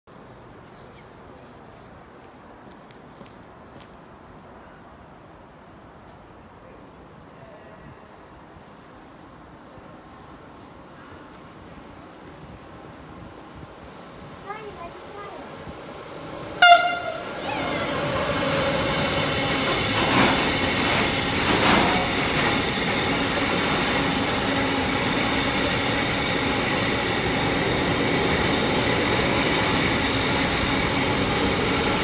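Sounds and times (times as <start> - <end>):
train rumbling past: 7.0 - 32.0
locomotive horn blast: 16.6 - 18.1.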